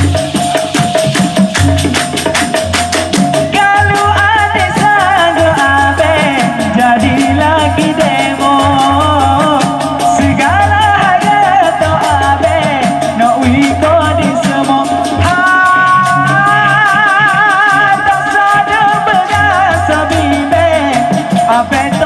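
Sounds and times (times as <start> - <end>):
high percussive ticks: 0.0 - 22.0
steady drum beat: 0.0 - 22.0
man singing into microphone: 3.5 - 22.0.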